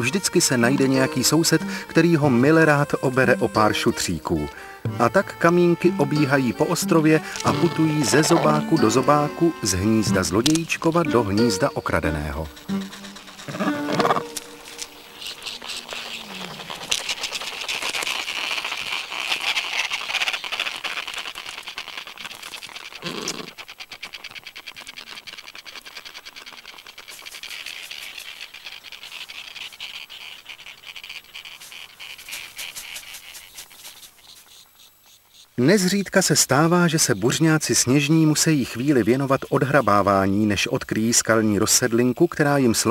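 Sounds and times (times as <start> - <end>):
penguin colony chattering: 0.0 - 20.9, 35.6 - 42.9.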